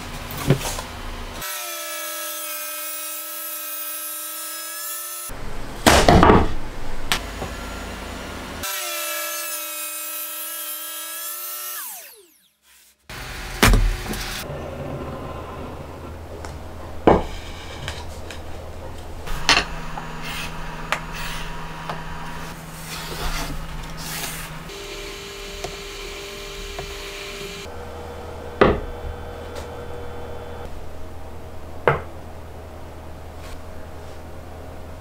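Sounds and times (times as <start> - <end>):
wooden knocks on a bench: 28.6 - 28.9.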